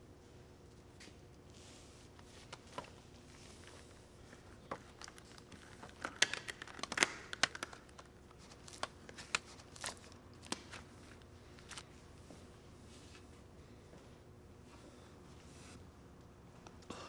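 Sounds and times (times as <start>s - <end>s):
latex gloves crinkling: 1.3s - 12.2s.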